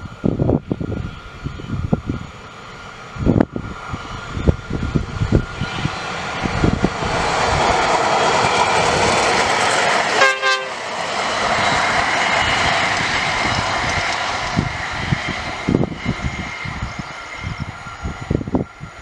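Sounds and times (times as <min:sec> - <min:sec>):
rail trolley passing on rails: 0:00.0 - 0:19.0
short horn blast: 0:10.2 - 0:10.8.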